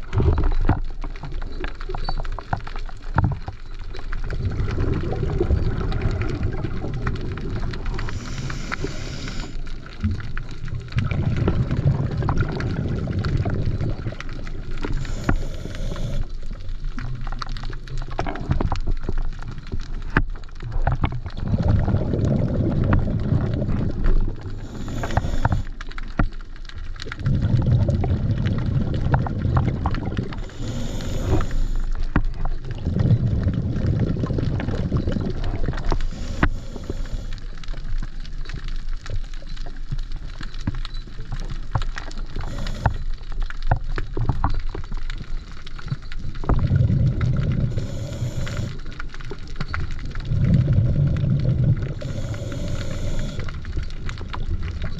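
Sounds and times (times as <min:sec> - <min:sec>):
crackle of small clicks: 0:00.0 - 0:54.9
exhaled bubbles rumbling: 0:00.0 - 0:54.9
regulator inhalation hiss: 0:08.0 - 0:09.6, 0:14.9 - 0:16.3, 0:24.6 - 0:25.8, 0:30.4 - 0:32.0, 0:36.0 - 0:37.4, 0:42.4 - 0:43.0, 0:47.6 - 0:48.9, 0:52.0 - 0:53.6.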